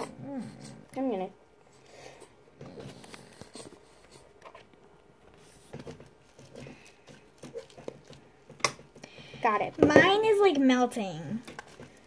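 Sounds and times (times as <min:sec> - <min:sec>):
slime squishing: 0:02.6 - 0:09.8, 0:10.5 - 0:12.0.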